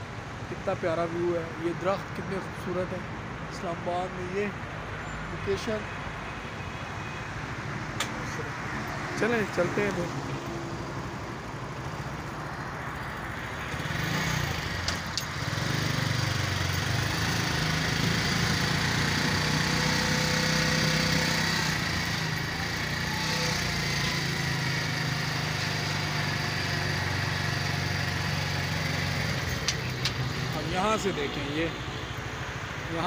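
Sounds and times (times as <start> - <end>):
engine droning: 9.2 - 33.0.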